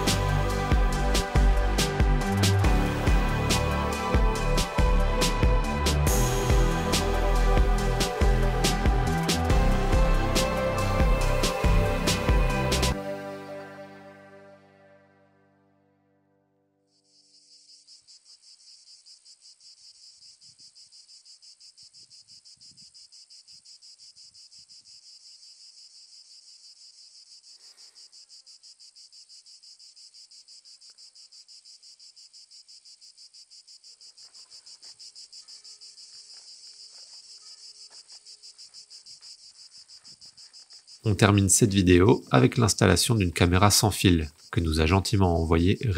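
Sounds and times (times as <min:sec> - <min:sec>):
insects chirring: 0:16.8 - 0:45.9.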